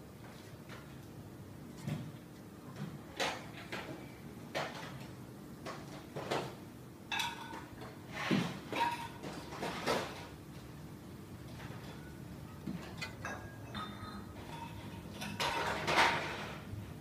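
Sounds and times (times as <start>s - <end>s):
fan motor humming: 8.8s - 17.0s.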